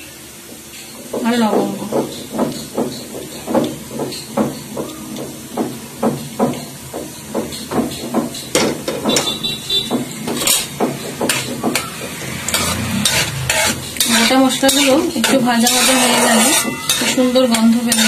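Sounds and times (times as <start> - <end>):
steady knocking: 1.1 - 14.9
spices sizzling in hot oil: 11.3 - 18.0.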